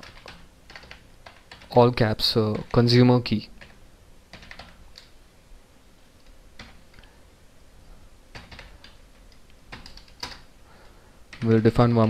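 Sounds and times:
keyboard keys clicking: 0.0s - 1.8s, 3.6s - 5.1s, 6.6s - 7.1s, 8.3s - 10.5s.

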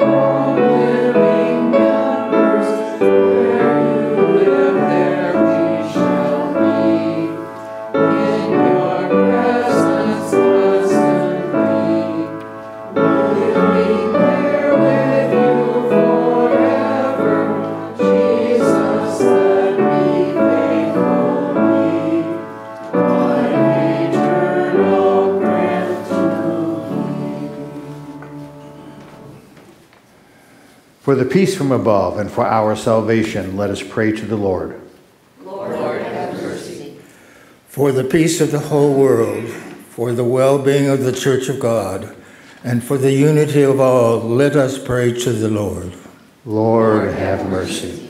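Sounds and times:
congregation singing a hymn: 0.0s - 29.8s, 35.4s - 48.0s
piano accompaniment: 0.0s - 29.8s.

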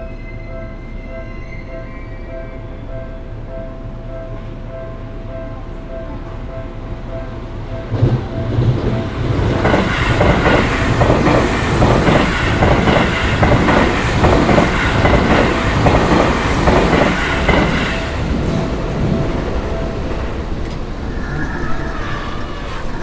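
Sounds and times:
train wheels clacking over rail joints: 9.5s - 18.6s.

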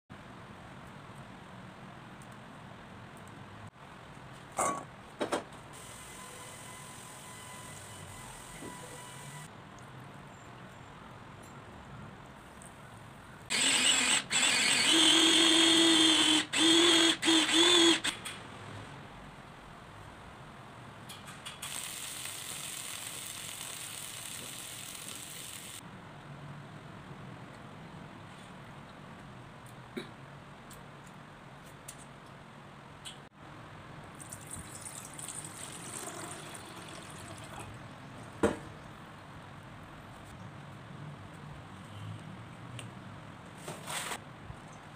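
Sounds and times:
food chopper motor whirring: 13.5s - 18.1s, 21.8s - 25.8s
water pouring into saucepan: 34.2s - 37.8s.

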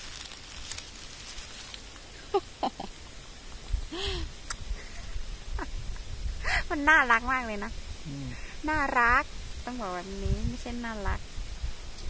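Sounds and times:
woman humming mmm: 8.0s - 8.4s.

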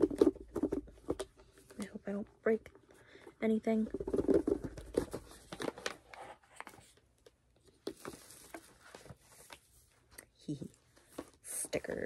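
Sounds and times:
paper and plastic crinkling: 4.0s - 7.0s, 7.6s - 10.0s.

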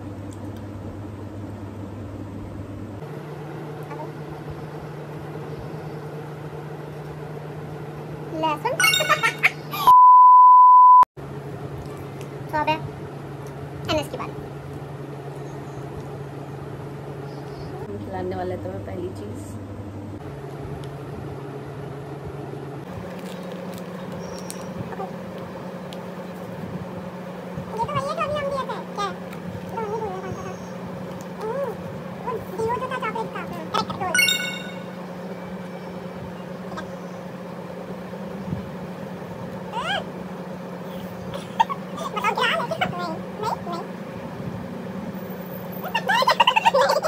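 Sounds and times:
low mechanical hum: 0.0s - 9.9s, 11.2s - 47.0s
motor hum: 0.0s - 9.9s.

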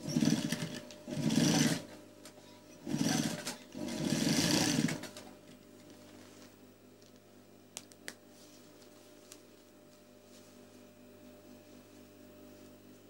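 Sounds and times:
sewing machine stitching: 0.0s - 2.0s, 2.8s - 5.3s.

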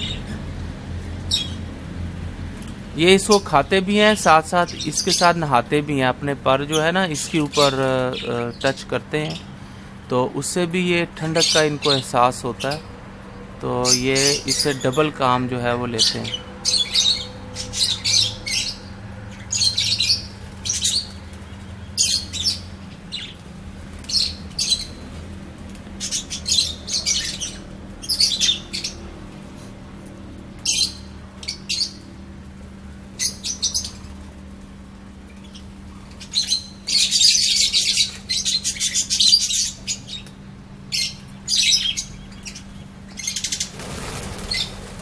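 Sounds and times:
budgerigars chirping: 0.0s - 0.4s, 1.2s - 1.7s, 3.0s - 9.8s, 10.5s - 12.9s, 13.7s - 23.4s, 24.0s - 25.1s, 25.9s - 29.0s, 30.6s - 32.1s, 33.2s - 34.1s, 35.3s - 40.3s, 40.9s - 44.9s
steady low hum: 0.0s - 45.0s.

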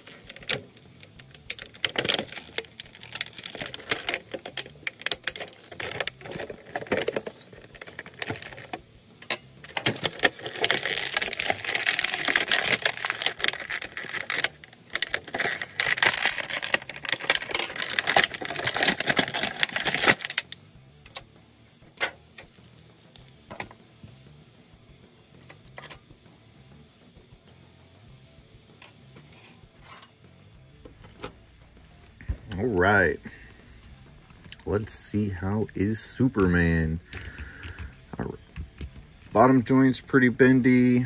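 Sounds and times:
plastic packaging crinkling: 0.0s - 8.8s, 9.6s - 20.6s.

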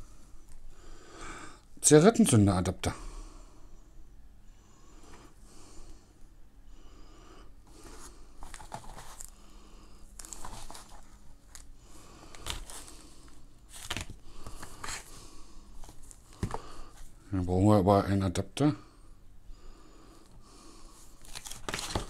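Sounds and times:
cables and adapters being handled: 8.4s - 9.4s, 10.1s - 15.1s, 21.2s - 22.0s.

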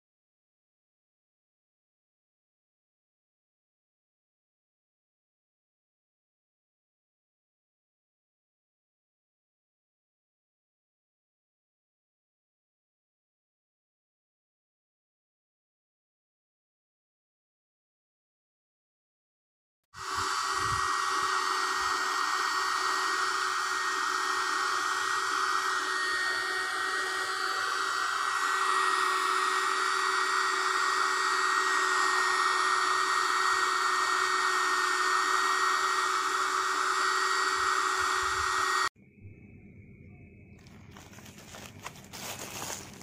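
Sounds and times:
mini vacuum cleaner whine: 20.0s - 39.4s, 40.1s - 43.0s.

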